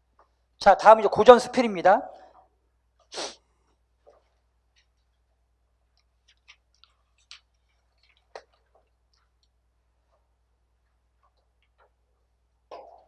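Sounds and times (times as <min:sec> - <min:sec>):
faint irregular clicks: 0:03.7 - 0:12.9.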